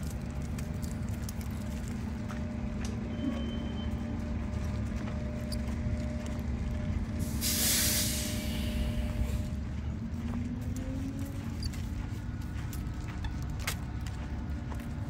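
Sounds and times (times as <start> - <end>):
low rumble of traffic: 0.0 - 15.0
loud hissing burst: 7.2 - 9.0.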